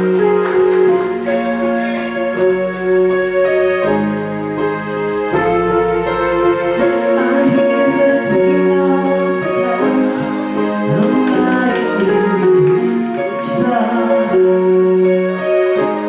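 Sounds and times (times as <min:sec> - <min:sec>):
bass guitar: 0:00.0 - 0:16.0
electric guitar: 0:00.0 - 0:16.0
synthesizer chords: 0:00.0 - 0:16.0.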